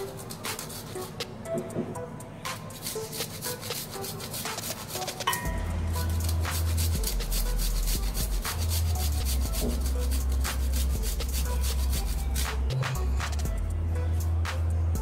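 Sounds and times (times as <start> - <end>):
ginger grating on grater: 2.7 - 5.3, 6.0 - 12.6.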